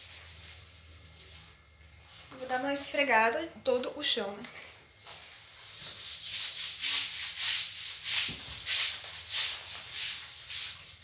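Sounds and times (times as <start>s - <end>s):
brush scrubbing wet tiled floor: 0.0s - 2.6s, 5.1s - 11.0s.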